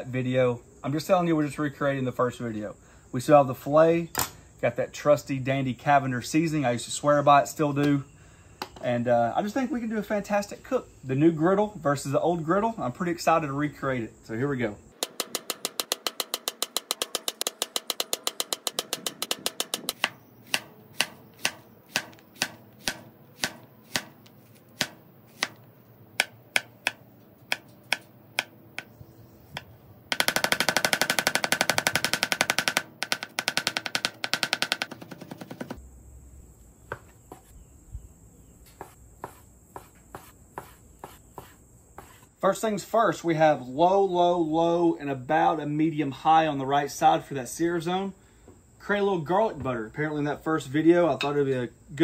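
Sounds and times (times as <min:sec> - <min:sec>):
knife chopping on cutting board: 0:19.7 - 0:25.6, 0:26.2 - 0:28.9.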